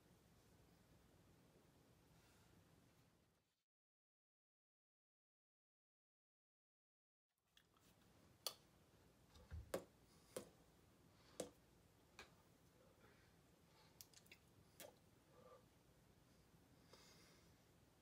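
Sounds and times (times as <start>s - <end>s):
faint sharp clicks and taps: 11.3s - 12.4s.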